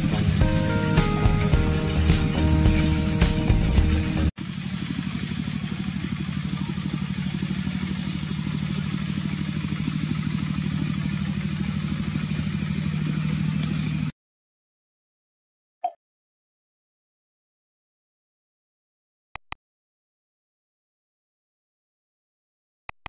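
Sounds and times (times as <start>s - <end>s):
small engine running: 0.0s - 14.1s.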